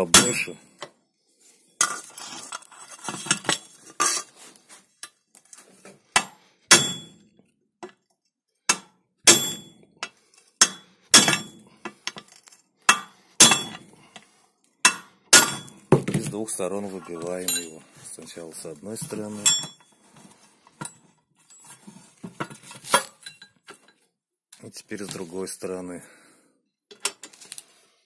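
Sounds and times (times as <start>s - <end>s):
hammer striking chisel on steel: 0.1s - 0.6s, 6.1s - 7.2s, 8.7s - 11.6s, 12.9s - 13.9s, 14.8s - 15.8s.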